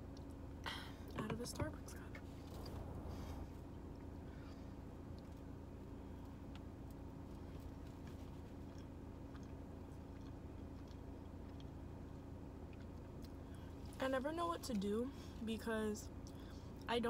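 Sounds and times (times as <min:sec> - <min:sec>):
car interior hum: 0:00.0 - 0:17.0
chewing and tearing food: 0:03.6 - 0:14.0.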